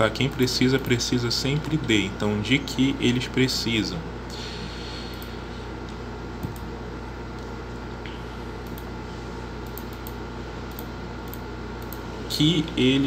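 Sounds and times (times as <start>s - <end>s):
steady hum and hiss: 0.0s - 13.0s
computer mouse click: 9.6s - 12.0s.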